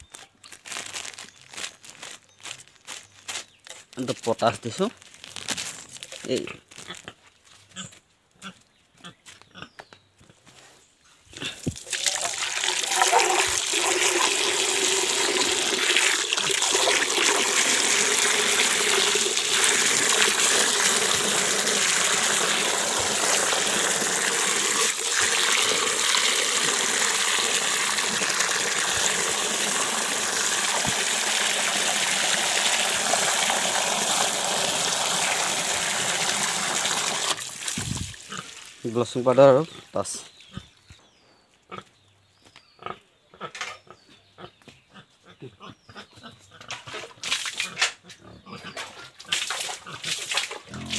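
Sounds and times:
water from a hose filling metal pot: 11.8 - 38.9.

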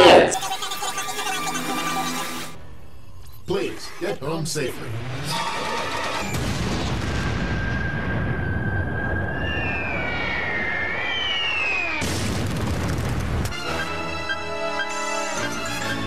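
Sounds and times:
cartoon explosion rumbling blast: 6.2 - 13.5
whistling tone bending downward: 7.3 - 12.1.

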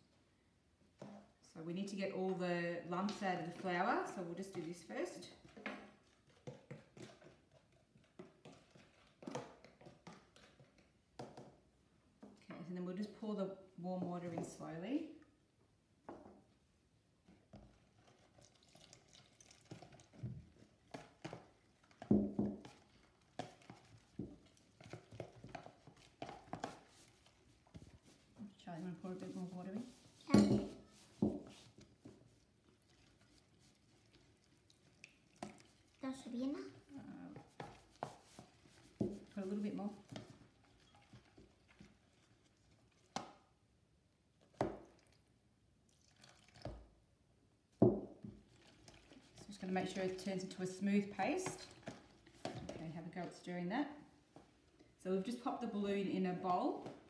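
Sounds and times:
whisk stirring paste: 2.9 - 11.5, 17.2 - 43.4, 48.2 - 53.4
whisk tapping plastic tub: 19.6 - 33.8, 36.6 - 41.8, 47.8 - 53.4.

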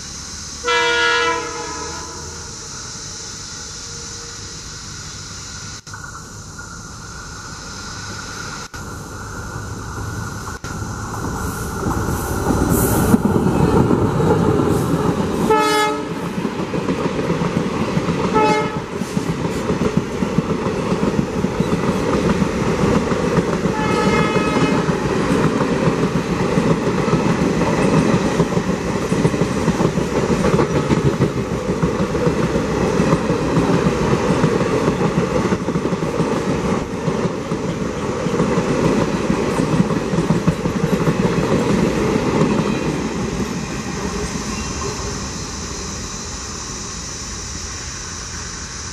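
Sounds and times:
diesel locomotive passing: 0.0 - 48.9
train coaches rolling on track: 0.0 - 48.9
locomotive horn blasts: 0.6 - 2.4, 15.4 - 16.2, 18.3 - 18.9, 23.6 - 24.9.

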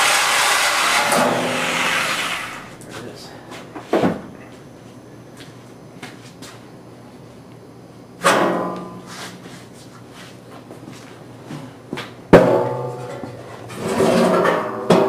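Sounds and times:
sheet metal clanging: 0.8 - 2.0, 12.4 - 15.0.

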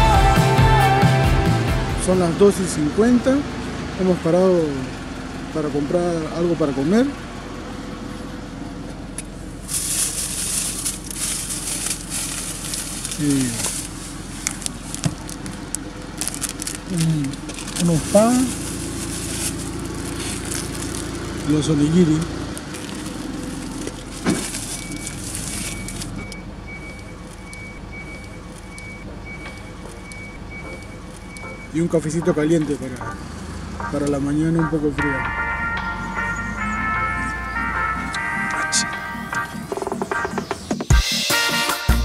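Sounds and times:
car engine idling hum: 0.0 - 40.5
clothing and bag rustling: 9.6 - 21.5, 22.4 - 26.2
plastic packaging crinkling: 9.6 - 21.7, 22.4 - 26.2
repeating high electronic beep: 25.7 - 31.8.

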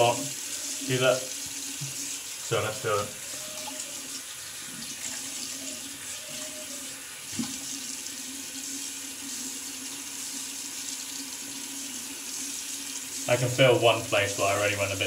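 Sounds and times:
tap running into sink: 1.4 - 2.1, 7.3 - 7.7.

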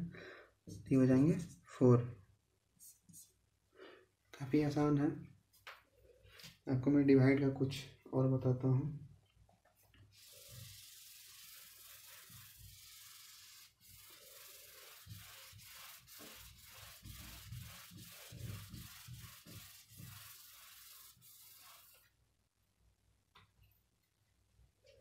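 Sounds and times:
cloth wiping a board: 10.2 - 22.1.

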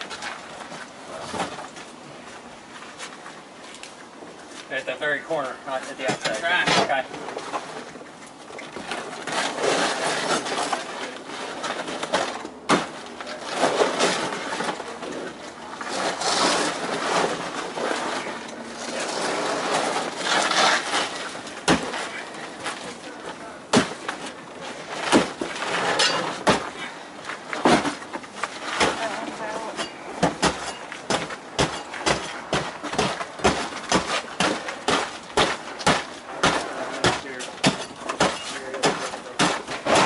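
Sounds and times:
roofing scraping and ripping: 8.7 - 40.0
shovel striking: 19.6 - 22.2, 25.0 - 26.8, 29.8 - 40.0.

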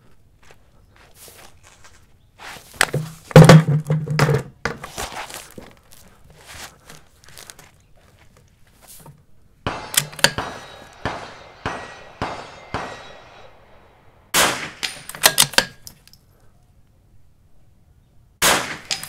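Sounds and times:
rifle shots: 9.6 - 15.8, 18.4 - 19.0
bullets ringing on steel targets: 9.7 - 16.0.

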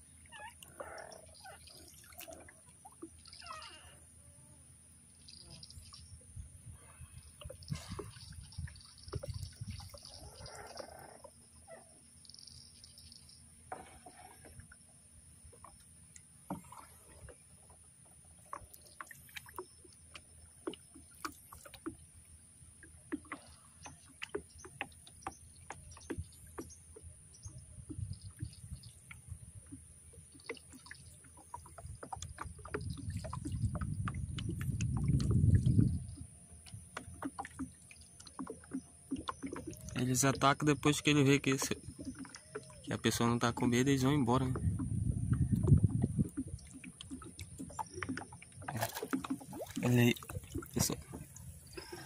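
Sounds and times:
water lapping: 0.0 - 4.1, 5.3 - 52.0
wind rumble on microphone: 6.0 - 11.1, 27.3 - 29.8, 31.8 - 37.2, 44.3 - 48.1
light knocks against hull: 22.8 - 52.0.

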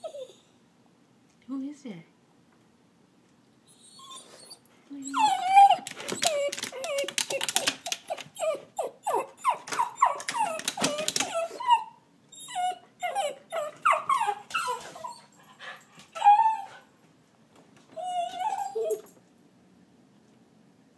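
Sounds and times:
dog whining: 0.0 - 0.6, 3.6 - 16.9, 17.9 - 19.2.

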